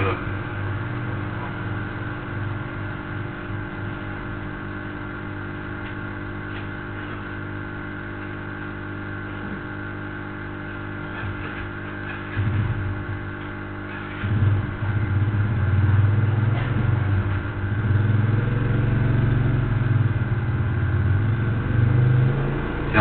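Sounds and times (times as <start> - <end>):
steady hum with fixed tones: 0.0 - 23.0
low rumble: 14.2 - 21.8.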